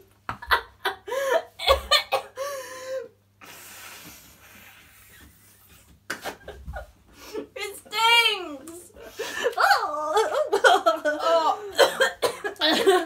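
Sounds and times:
breathy hiss of air: 2.6 - 5.2.

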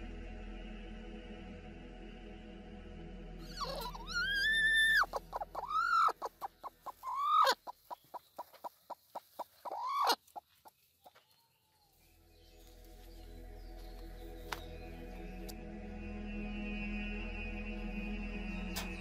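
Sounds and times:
hen squawking: 3.4 - 10.4
hen clucking: 3.5 - 11.2.

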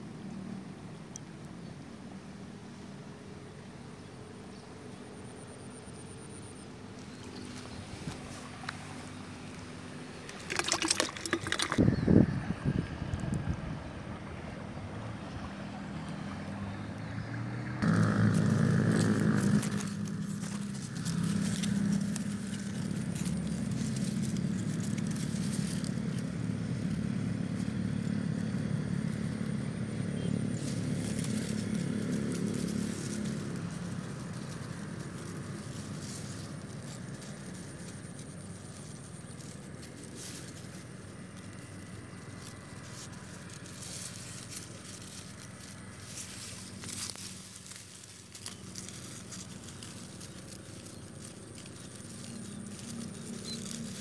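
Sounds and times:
scraping and crackling: 10.2 - 11.8, 17.8 - 54.0
small engine running: 17.6 - 54.0.

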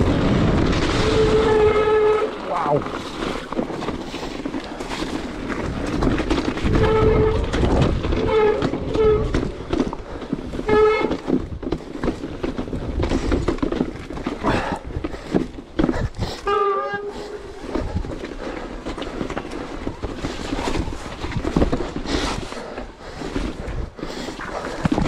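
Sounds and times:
tyres rattling on rock and gravel: 0.0 - 16.6.

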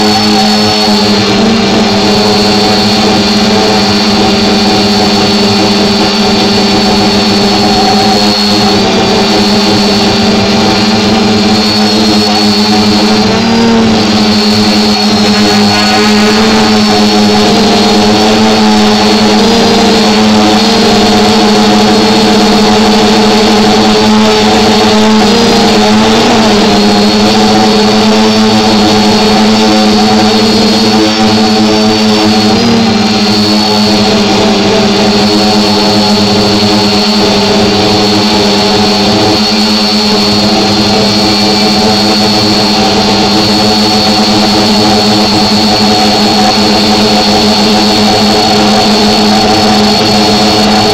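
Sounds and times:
drone motors buzzing: 0.0 - 50.9.

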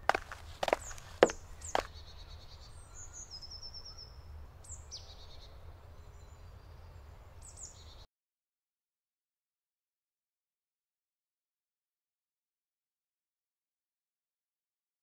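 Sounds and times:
falling bird call: 0.0 - 1.9
birds chirping: 0.0 - 8.0.

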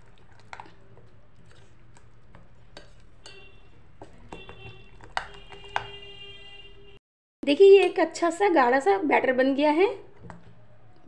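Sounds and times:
batter stirred in glass bowl: 0.0 - 6.1.

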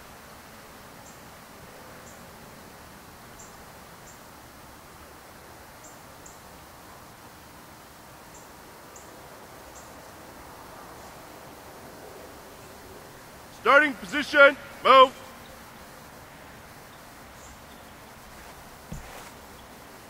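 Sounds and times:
steady hiss: 0.0 - 20.0.

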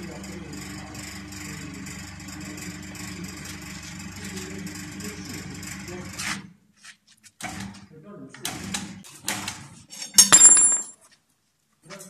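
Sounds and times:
electric gear motor humming: 0.0 - 6.3.

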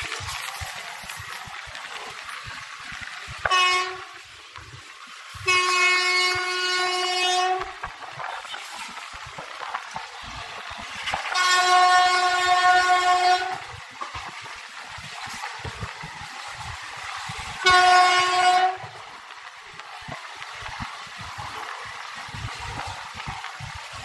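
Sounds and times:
train running on rails: 0.0 - 24.0
locomotive horn blasts: 3.5 - 4.2, 5.4 - 7.8, 11.3 - 13.7, 17.6 - 19.0.

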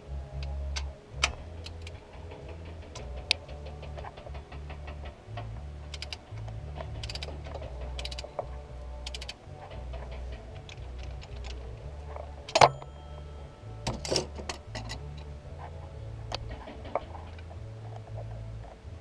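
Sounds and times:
ratchet wrench clicking: 5.9 - 8.4, 9.0 - 9.4.

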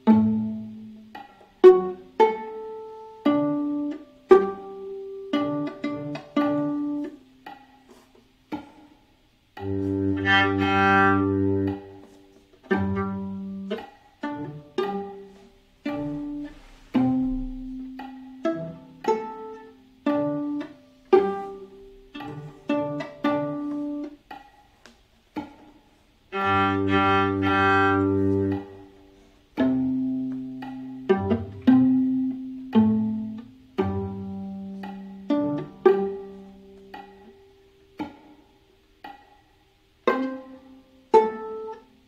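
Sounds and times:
viola playing tango: 0.0 - 8.1, 9.6 - 24.3, 26.3 - 38.4, 40.0 - 42.0
lower string voice: 9.6 - 24.2, 26.3 - 37.3.

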